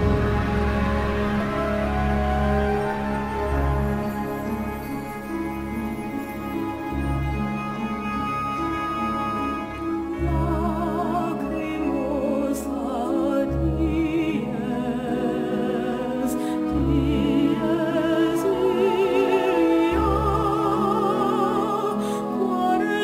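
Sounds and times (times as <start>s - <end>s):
deep bass notes: 0.0s - 4.1s
orchestral music: 0.0s - 23.0s
operatic voice singing with vibrato: 10.1s - 23.0s.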